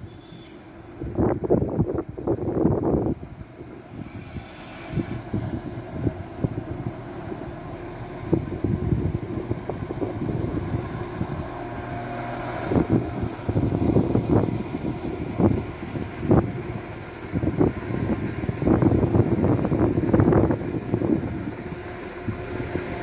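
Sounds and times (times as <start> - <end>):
thin high squeal: 0.0 - 0.7, 4.0 - 5.3
train diesel engines humming: 0.0 - 23.0
brief hisses: 4.0 - 5.6.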